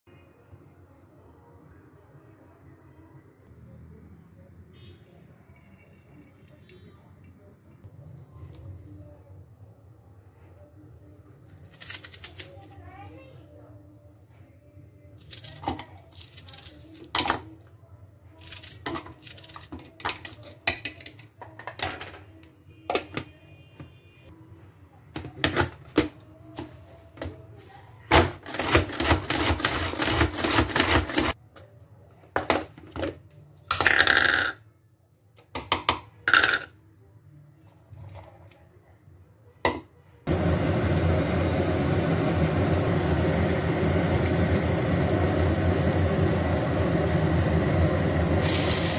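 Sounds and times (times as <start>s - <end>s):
knife slicing onion: 28.2s - 31.3s
seeds sizzling in hot oil: 40.4s - 48.9s.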